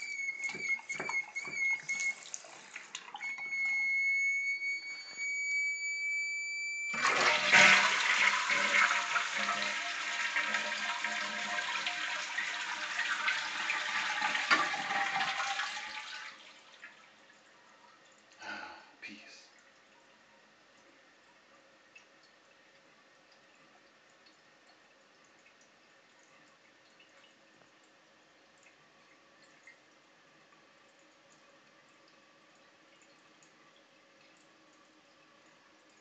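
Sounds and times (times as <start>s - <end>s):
toilet flushing water rush: 0.0s - 3.8s, 7.0s - 17.2s
toilet fill valve whistling: 0.0s - 16.3s.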